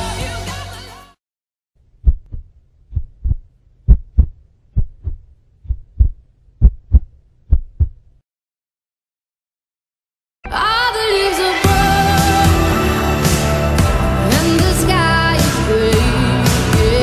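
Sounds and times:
heartbeat thumps: 0:02.0 - 0:08.0.

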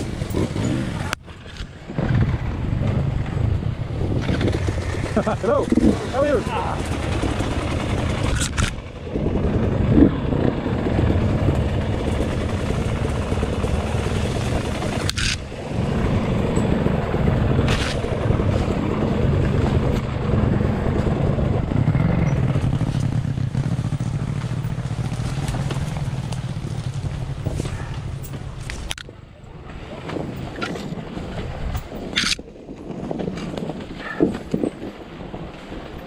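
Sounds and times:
wind and trail noise: 0:00.0 - 0:36.0.

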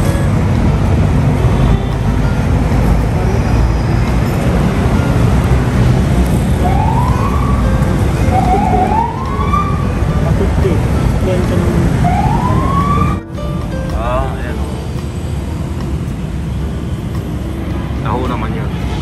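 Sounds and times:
low rumble of road traffic: 0:00.0 - 0:19.0
siren wailing: 0:06.6 - 0:10.1, 0:12.0 - 0:13.3.

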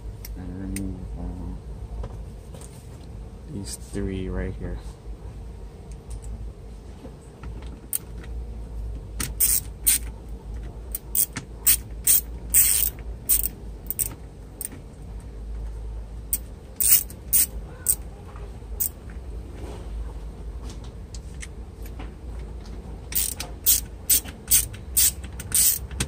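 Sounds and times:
hand ratchet clicking: 0:09.2 - 0:10.1, 0:10.9 - 0:14.7, 0:16.3 - 0:18.0, 0:23.1 - 0:26.0.

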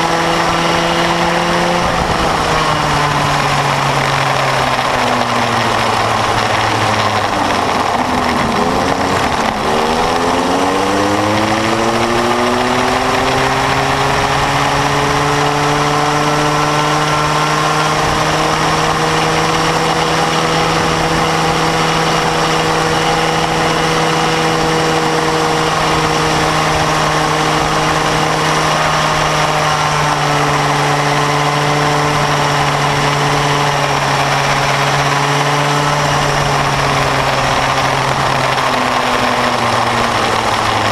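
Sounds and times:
go-kart engine: 0:00.0 - 0:40.9.

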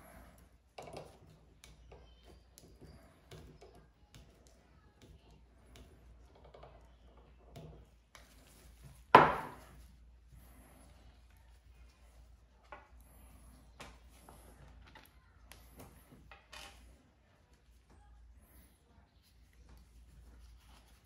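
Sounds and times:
hard knock on wooden table: 0:09.2 - 0:09.6.

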